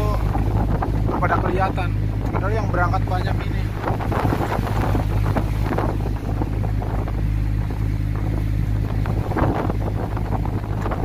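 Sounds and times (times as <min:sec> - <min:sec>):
boat engine droning: 0:00.0 - 0:11.0
waves washing against hull: 0:00.0 - 0:11.0
wind buffeting microphone: 0:00.0 - 0:11.0.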